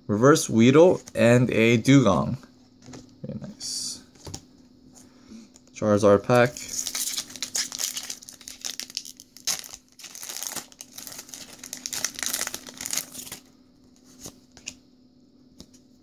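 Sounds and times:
foil wrapper tearing and crinkling: 0:06.7 - 0:13.5.

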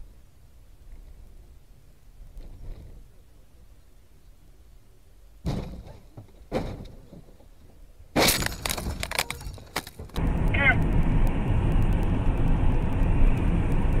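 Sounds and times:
knocks: 0:05.4 - 0:07.3
car crash with breaking and cracking: 0:08.2 - 0:10.2.

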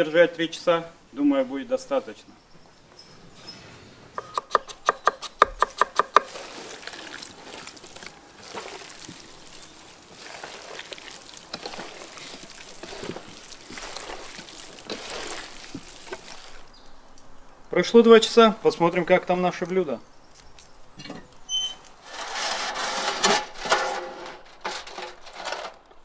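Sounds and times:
hands squelching raw meat: 0:06.0 - 0:17.0.

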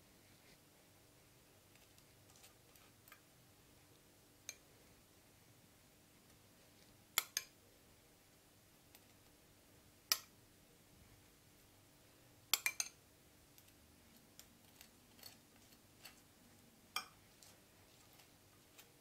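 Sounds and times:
metal spoon clinking on dishes: 0:12.5 - 0:13.0.

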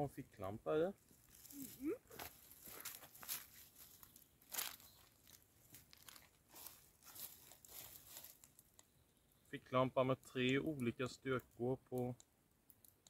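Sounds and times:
faint rustling and crunching: 0:00.9 - 0:09.0.

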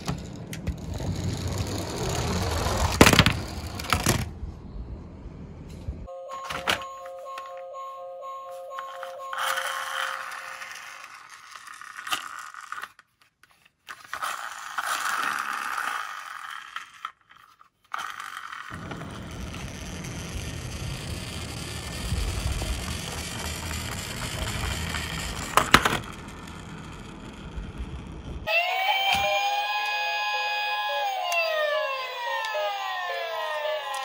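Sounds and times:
toy cars scraping on cardboard: 0:00.0 - 0:04.2, 0:09.3 - 0:28.4
low rumbling noise: 0:00.0 - 0:06.1, 0:18.8 - 0:28.5.

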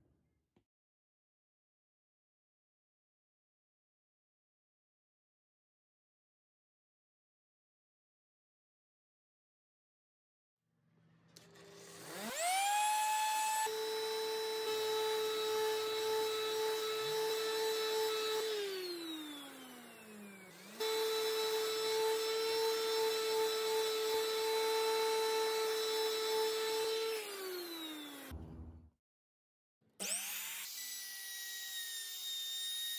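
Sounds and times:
orbital sander sanding wood: 0:12.0 - 0:28.3.

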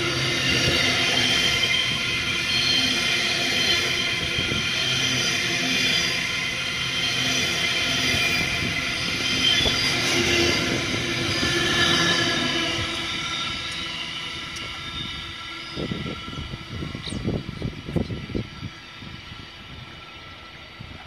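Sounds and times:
steady high tones: 0:00.0 - 0:21.0
train wheels rumbling: 0:00.0 - 0:21.0.

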